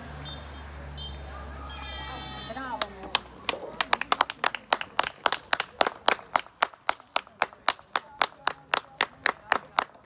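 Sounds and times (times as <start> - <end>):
hand clapping: 2.8 - 10.0.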